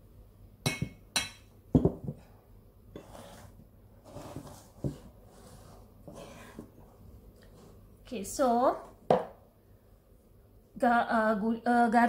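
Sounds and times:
bowls clunking on a tabletop: 0.7 - 2.2.

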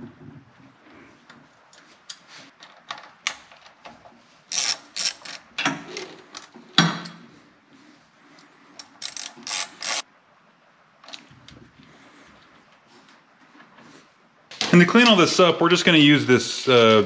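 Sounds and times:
screwdriver clicking and scraping: 4.5 - 6.5, 8.8 - 10.0.

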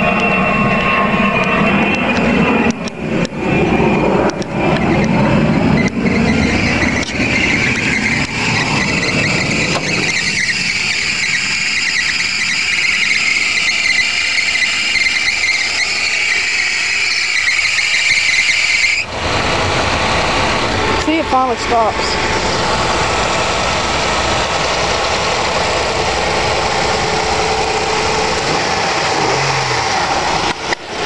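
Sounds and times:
car engine idling: 0.0 - 31.0
high-pitched belt squeal: 3.5 - 19.1.

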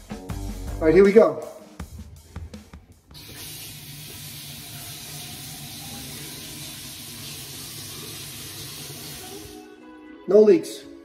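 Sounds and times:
water running into sink: 3.1 - 9.6.

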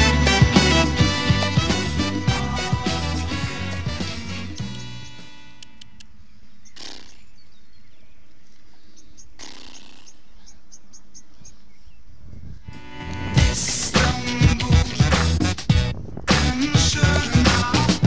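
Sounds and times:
small bird chirping: 4.6 - 12.1
steady low rumble: 12.4 - 18.0.

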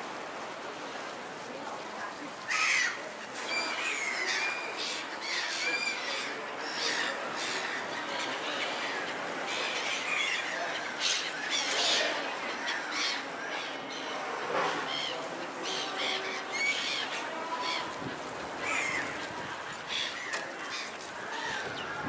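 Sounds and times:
seagulls squawking: 14.8 - 22.0.

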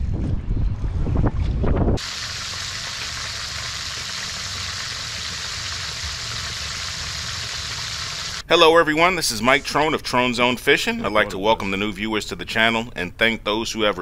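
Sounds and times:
wind buffeting microphone: 0.0 - 2.1
fish frying in hot oil: 2.0 - 8.4.

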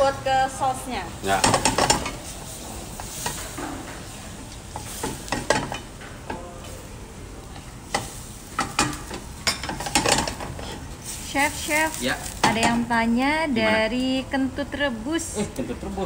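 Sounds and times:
sauce sizzling in a frying pan: 0.0 - 6.0, 7.7 - 13.0.

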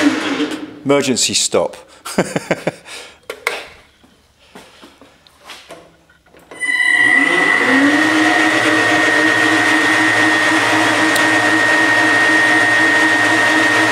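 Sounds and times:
lathe motor whining: 6.5 - 13.9.

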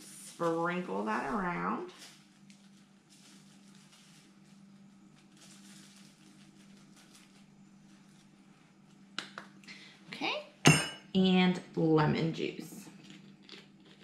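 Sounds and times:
seasoning shaker hiss: 0.0 - 8.3
low steady hum: 0.0 - 14.0.

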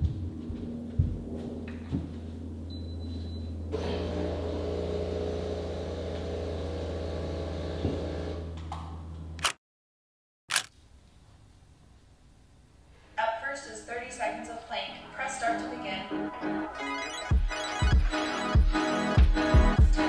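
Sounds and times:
espresso machine hum: 3.7 - 8.6
espresso machine hiss and whir: 3.8 - 8.4.

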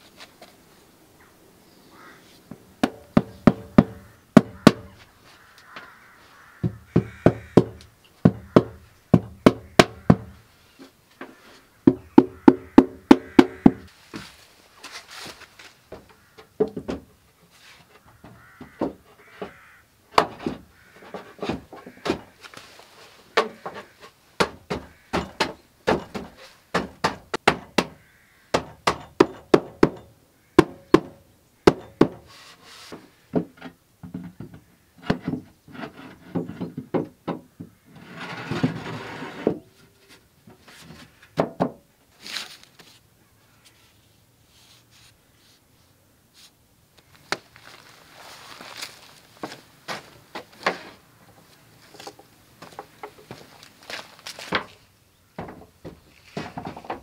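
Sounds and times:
wooden knocks and clacks: 6.6 - 10.4, 11.2 - 13.9, 15.9 - 17.2, 18.0 - 19.6, 20.2 - 22.4, 23.3 - 32.3, 33.0 - 39.7, 49.4 - 53.5, 55.4 - 57.0
scraping rustle: 13.9 - 16.4, 17.3 - 19.7, 20.3 - 24.3, 26.0 - 26.7, 32.2 - 33.8, 37.8 - 41.4, 42.1 - 54.9, 55.5 - 57.0.

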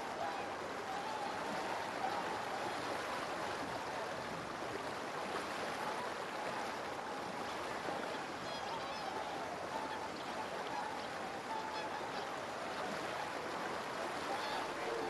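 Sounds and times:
swans calling: 0.0 - 2.8, 8.4 - 13.4, 14.2 - 15.0
flowing river water: 0.0 - 15.0.

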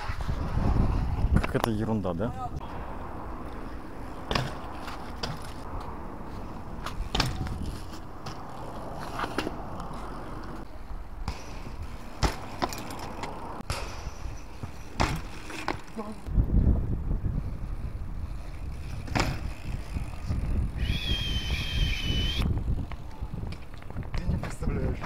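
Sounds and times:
bike tyres rolling on paving: 2.9 - 25.0
bike wheels landing knocks: 4.2 - 5.6, 6.8 - 8.4, 11.2 - 14.0, 14.6 - 16.0, 19.0 - 19.6.

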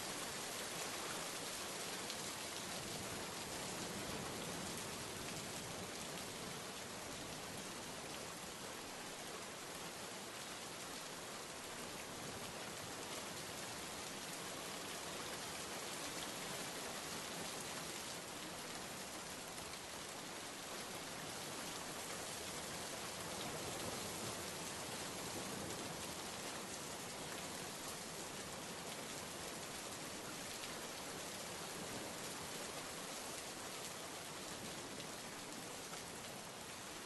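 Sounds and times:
steady rainfall: 0.0 - 37.0.

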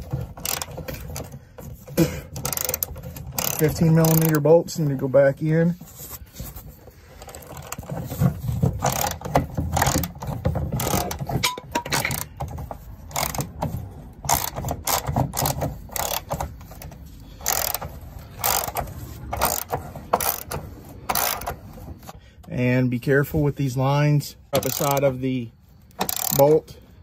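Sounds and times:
socket ratchet clicking: 0.0 - 1.4, 2.3 - 4.5, 8.8 - 21.8, 24.6 - 25.2, 25.8 - 26.6
metal clatter: 7.2 - 22.1.

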